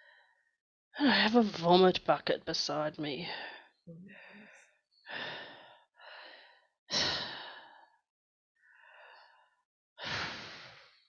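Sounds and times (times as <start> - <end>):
woman breathing heavily: 0.0 - 0.6, 3.2 - 11.0.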